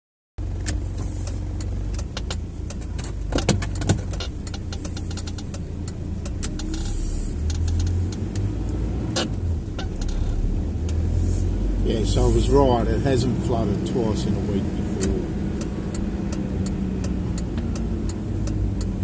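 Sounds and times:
car engine and road rumble: 0:00.4 - 0:19.0
sharp clicks and knocks: 0:00.5 - 0:11.1, 0:14.7 - 0:19.0.

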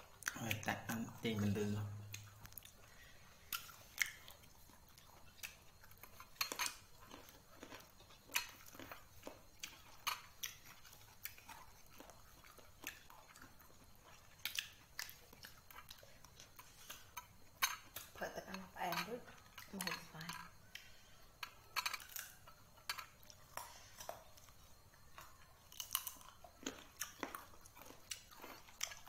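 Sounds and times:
person chewing with mouth clicks: 0:00.0 - 0:18.2, 0:19.3 - 0:29.0.

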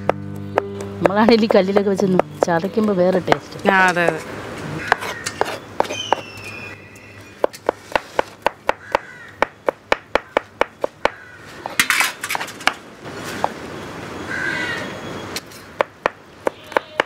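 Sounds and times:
knife chopping garlic: 0:00.0 - 0:06.3, 0:07.4 - 0:11.2.

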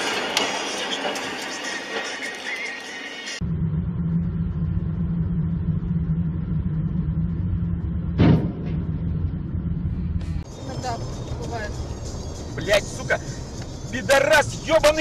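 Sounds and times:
road noise: 0:00.0 - 0:15.0
vehicle engine rumble: 0:00.0 - 0:15.0
loud thump: 0:08.1 - 0:09.3.

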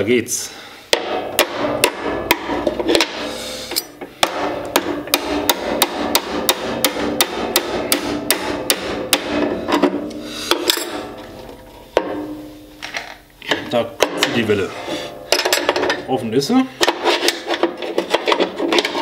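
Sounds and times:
hammer striking metal pliers: 0:00.9 - 0:09.9.

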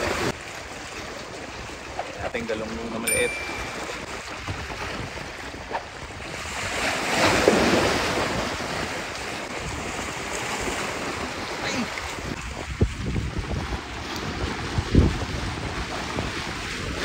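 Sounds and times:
sea waves breaking on rocks: 0:00.0 - 0:17.0
wind noise on microphone: 0:03.6 - 0:11.2, 0:12.0 - 0:17.0.

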